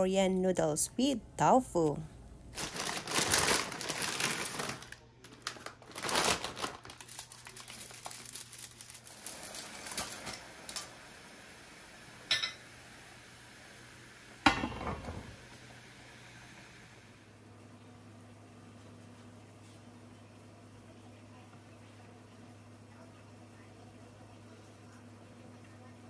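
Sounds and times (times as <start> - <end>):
plastic bag crinkling: 2.5 - 10.4.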